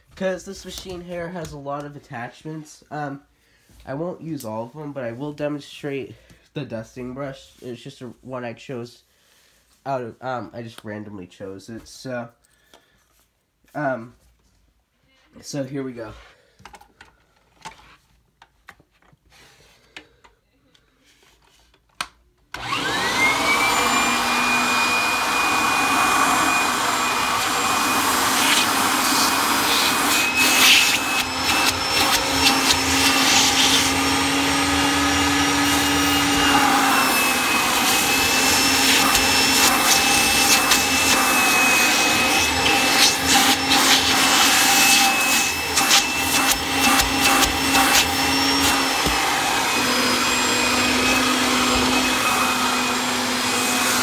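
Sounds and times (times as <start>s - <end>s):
vacuum cleaner motor whine: 22.5s - 54.0s.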